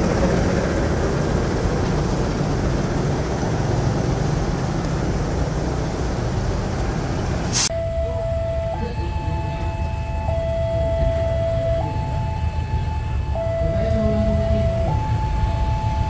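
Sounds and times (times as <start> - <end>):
passing train rumbling and hissing: 0.0 - 16.0
level-crossing alarm two tones: 7.7 - 16.0.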